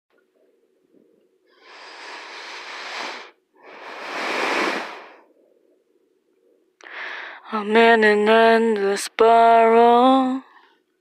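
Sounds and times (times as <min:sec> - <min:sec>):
person breathing close to microphone: 0:01.5 - 0:05.8, 0:06.8 - 0:07.4.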